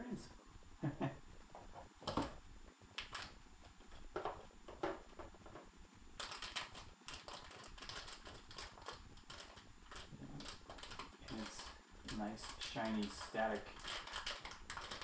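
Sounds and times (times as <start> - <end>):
plastic bag crinkling: 6.2 - 15.0.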